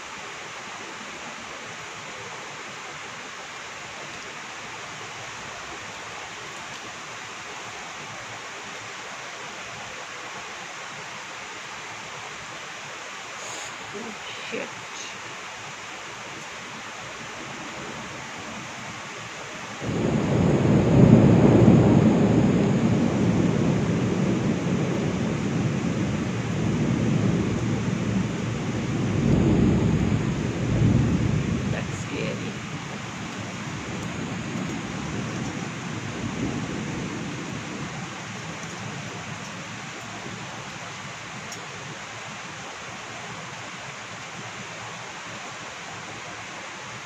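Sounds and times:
heavy rain falling: 0.0s - 47.0s
thunder rumble: 19.7s - 42.0s.

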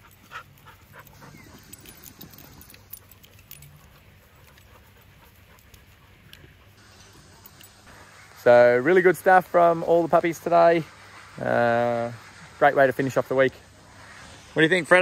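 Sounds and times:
dog panting: 0.0s - 7.7s
dogs rustling on grass: 0.0s - 15.0s.

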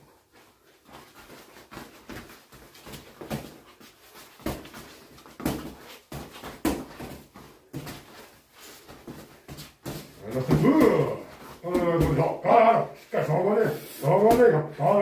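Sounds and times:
boxing gloves smacking focus mitts: 1.3s - 12.4s.

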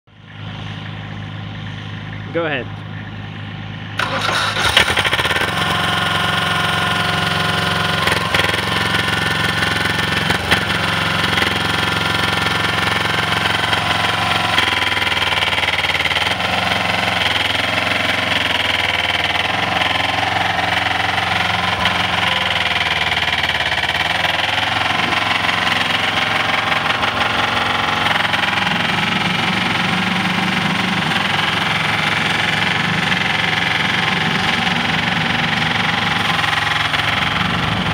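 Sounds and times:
compactor engine running: 0.1s - 37.9s
machine driving across gravel: 4.0s - 37.9s.

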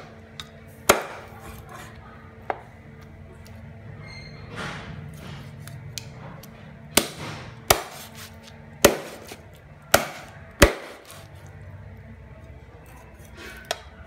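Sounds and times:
cleaver chopping on wooden board: 0.9s - 1.3s, 7.0s - 11.2s.

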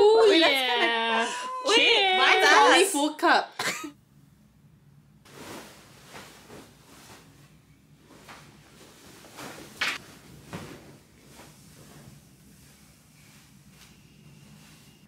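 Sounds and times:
bedding rustling and flapping: 5.3s - 15.0s.

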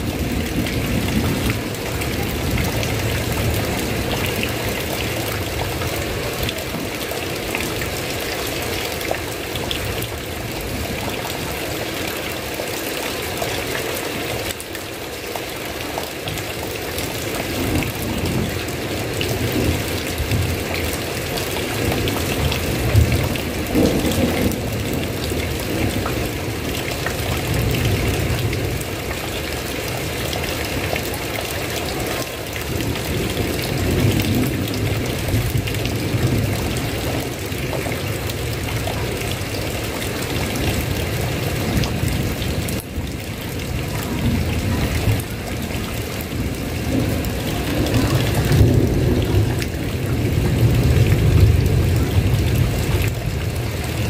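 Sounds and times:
heavy rain: 0.0s - 54.0s
thunder rumbling: 17.5s - 29.1s, 32.7s - 54.0s.

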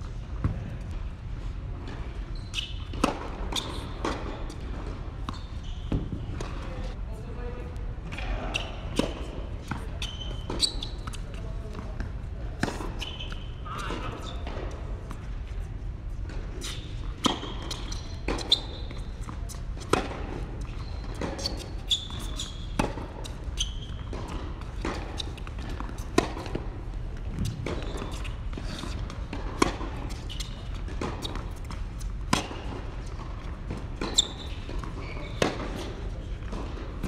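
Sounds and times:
shoes squeaking on court: 0.4s - 7.0s, 8.2s - 37.0s
rackets striking tennis ball: 17.2s - 37.0s.

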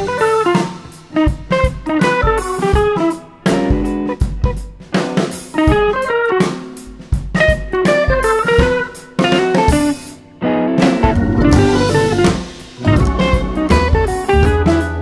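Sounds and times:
drum kit beat: 0.0s - 15.0s
plucked guitar: 7.4s - 15.0s.

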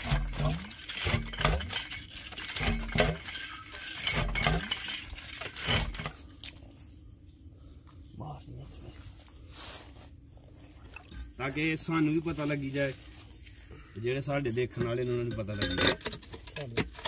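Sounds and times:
metal pipe clanking and thudding: 0.0s - 6.2s, 14.7s - 17.0s.

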